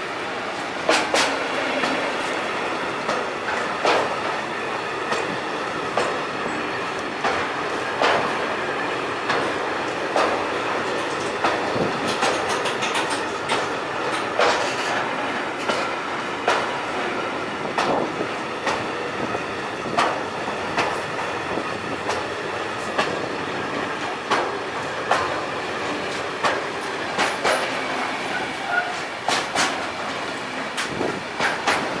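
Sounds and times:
train wheels clacking: 0.0 - 32.0
train wheels rumbling on rail: 0.0 - 32.0.

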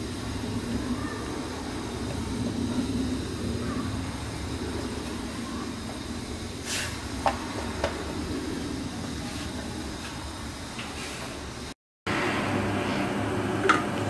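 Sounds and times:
low background rumble: 0.0 - 10.8.

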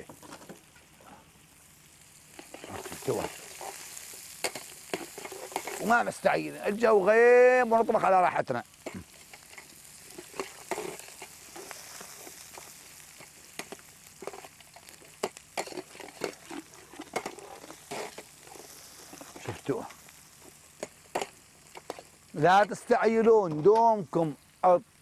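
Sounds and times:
onions sizzling in hot oil: 0.0 - 25.0
metal ladle scraping a pot: 4.5 - 5.9, 15.6 - 19.4.

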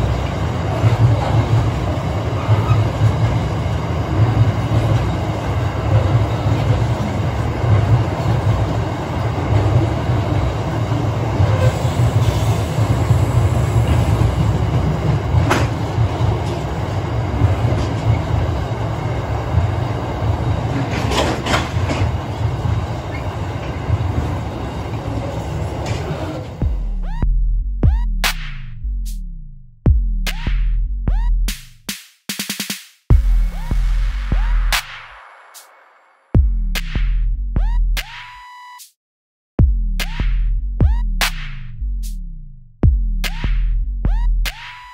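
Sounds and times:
sharp clacks of train wheels: 0.0 - 26.6
train wheels rumbling on rails: 0.0 - 26.9.

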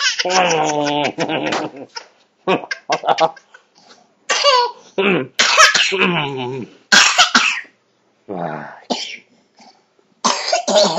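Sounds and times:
toddler gagging and coughing: 4.3 - 4.8, 10.3 - 10.9.

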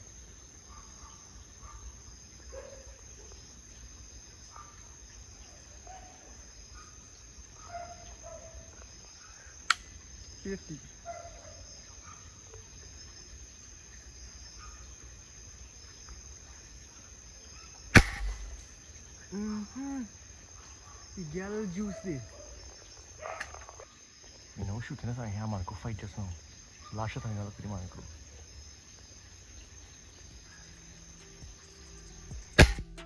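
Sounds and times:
crickets and insects chirping: 0.0 - 33.0
sharp click: 9.7 - 9.9, 18.0 - 18.4, 32.6 - 33.0
air rifle shot: 17.9 - 18.6, 32.6 - 32.9.

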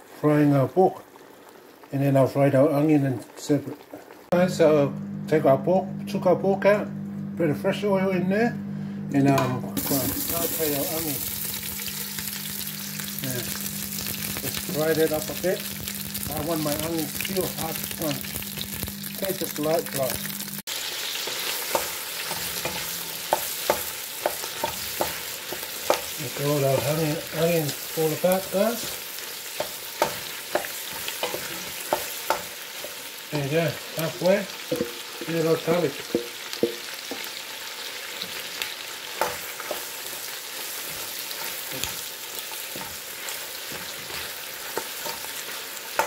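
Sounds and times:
onions sizzling in hot oil: 0.0 - 4.4, 9.8 - 46.0
wooden spoon knocking against pot: 34.7 - 35.3, 36.1 - 37.2.

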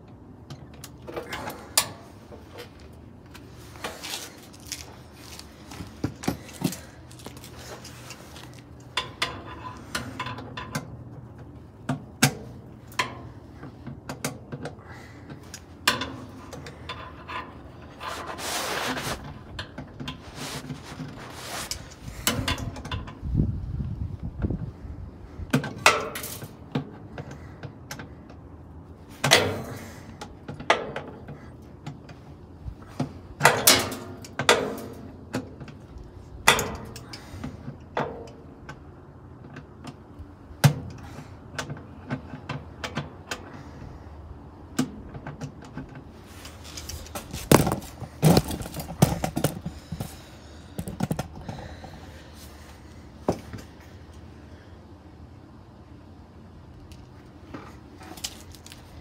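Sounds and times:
clothing rubbing on microphone: 18.0 - 19.3, 20.2 - 21.9
metal clanks and rattles: 33.0 - 35.8, 44.9 - 51.9.

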